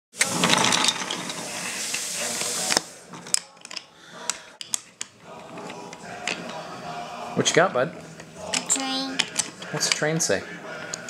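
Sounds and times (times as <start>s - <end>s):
toy train clicks and knocks: 8.5s - 10.1s.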